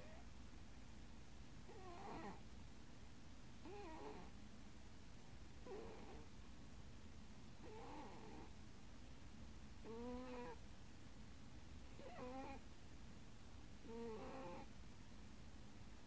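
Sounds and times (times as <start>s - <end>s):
cat snoring faintly: 1.7s - 2.4s, 3.6s - 4.4s, 5.6s - 6.3s, 7.6s - 8.5s, 9.8s - 10.6s, 11.9s - 12.6s, 13.8s - 14.7s.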